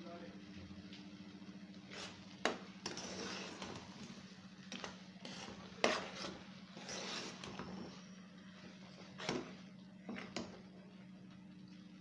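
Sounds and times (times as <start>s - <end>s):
spoon stirring beans in pot: 1.9s - 8.1s.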